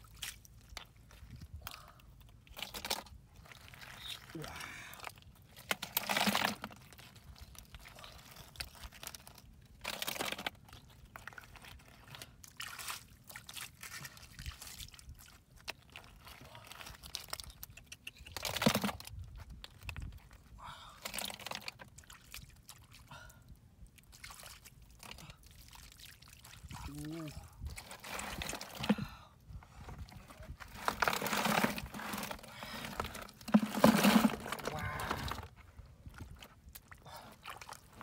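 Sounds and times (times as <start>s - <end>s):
mud squelching and water sloshing: 0.0s - 38.0s.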